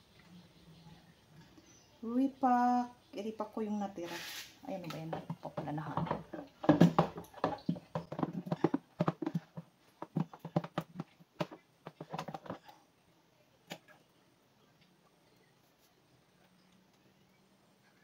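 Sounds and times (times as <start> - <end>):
plastic containers clicking on basin: 4.8 - 12.7.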